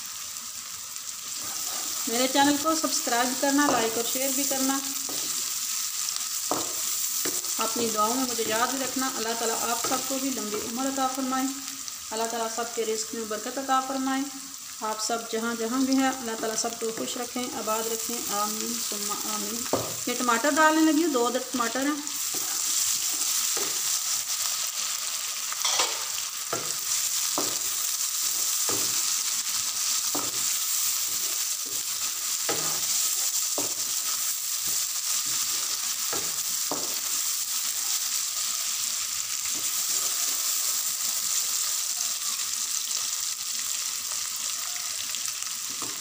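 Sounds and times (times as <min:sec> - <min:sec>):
tomatoes sizzling in hot oil: 0:00.0 - 0:46.0
spatula scraping pan: 0:01.3 - 0:02.6, 0:22.1 - 0:24.2, 0:25.6 - 0:37.2, 0:39.5 - 0:40.8.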